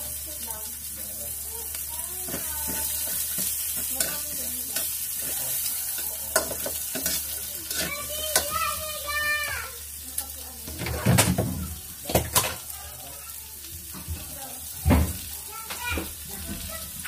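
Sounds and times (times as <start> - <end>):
food sizzling in a wok: 0.0 - 17.0
metal spatula scraping a pan: 2.2 - 8.8, 10.7 - 11.3.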